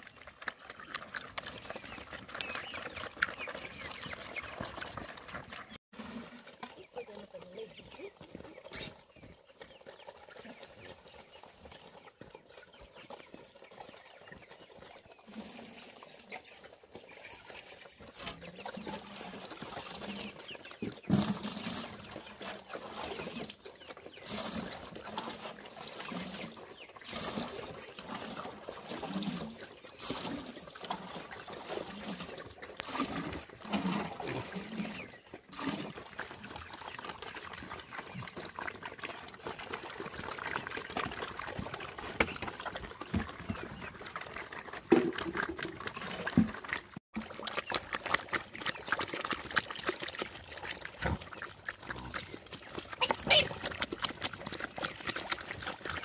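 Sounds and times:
pigs slurping and chomping: 0.0 - 56.0
pigs grunting: 29.0 - 56.0.

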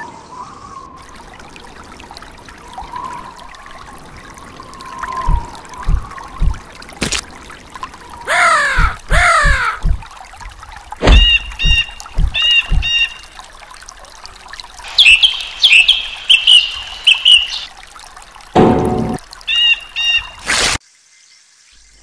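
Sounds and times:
trickling water: 0.0 - 20.8
dull thuds: 5.3 - 7.2, 11.0 - 13.0
high squeaky calls: 8.3 - 9.8
cartoon birds squawking: 8.3 - 9.9.

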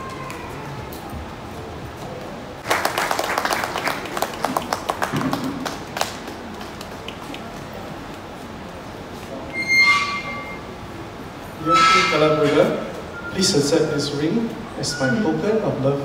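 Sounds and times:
people applauding: 2.6 - 7.6.

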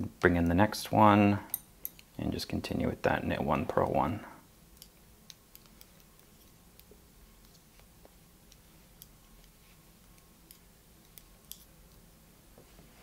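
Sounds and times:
knitting needles clicking: 4.8 - 7.9.

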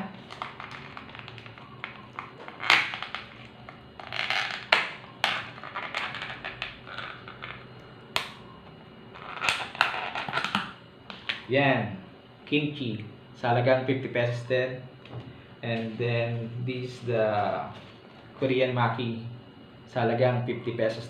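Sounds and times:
plastic crinkling and scraping: 0.2 - 7.6.

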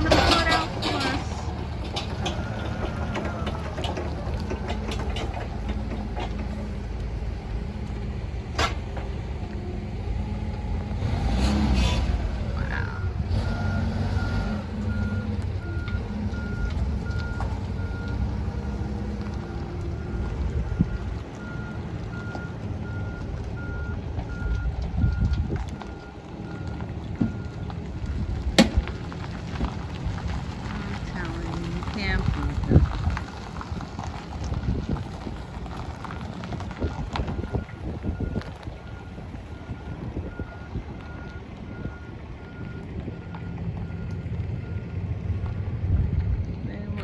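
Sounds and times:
forklift engine running: 0.0 - 47.0.

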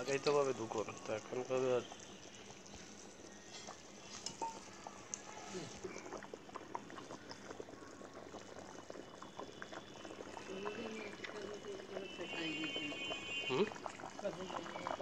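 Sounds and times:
gravy bubbling with small pops: 0.0 - 15.0.

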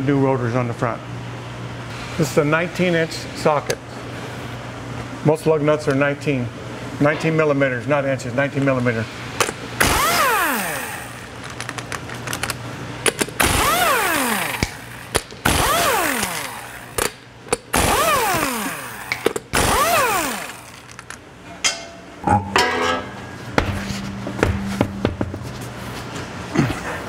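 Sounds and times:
impact wrench spinning: 9.8 - 21.2.

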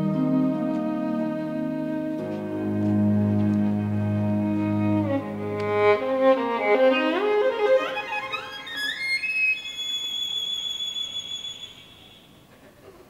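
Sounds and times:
instrumental ballet music: 0.0 - 10.2.

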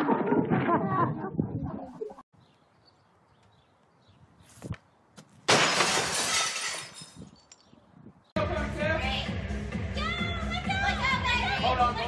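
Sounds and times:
glass shattering: 5.5 - 7.3.

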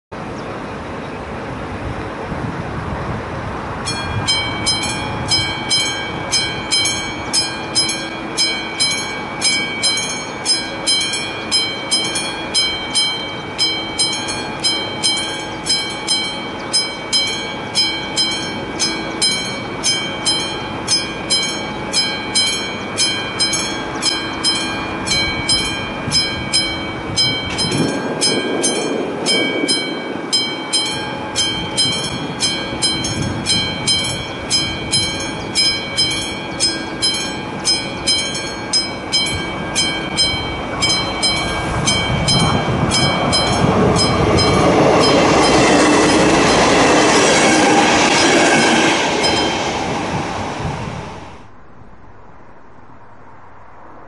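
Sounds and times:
level crossing warning bell: 3.8 - 50.5.

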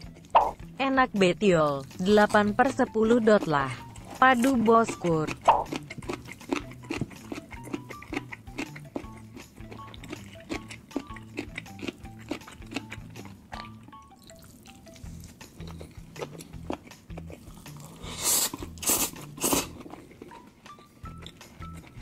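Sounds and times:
background music with bass line: 0.0 - 14.1, 14.8 - 19.8
chewing and wet mouth clicks: 4.4 - 22.0
man slurping noodles: 17.4 - 20.3.

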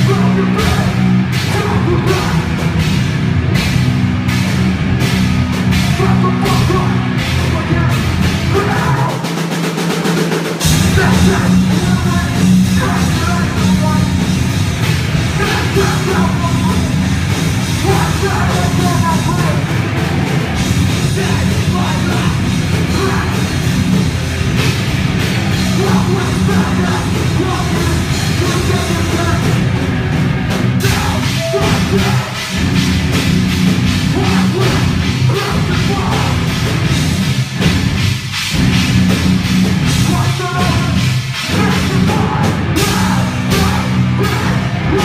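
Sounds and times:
vocalist on microphone: 0.0 - 2.8, 5.8 - 9.4, 10.6 - 14.4, 15.2 - 19.9, 20.8 - 23.6, 25.5 - 29.8, 30.7 - 33.2, 33.8 - 36.6, 39.8 - 45.0
bass guitar: 0.0 - 45.0
distorted electric guitars: 0.0 - 45.0
drums: 0.0 - 45.0.

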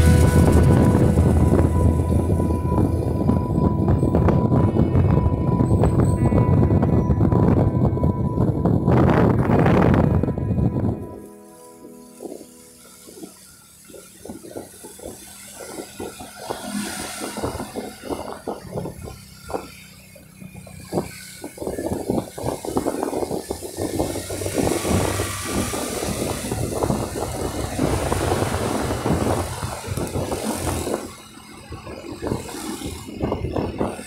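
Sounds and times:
engine noise: 0.0 - 34.0
crackling rattles: 9.5 - 34.0
tyre hiss on wet road: 11.4 - 31.4.

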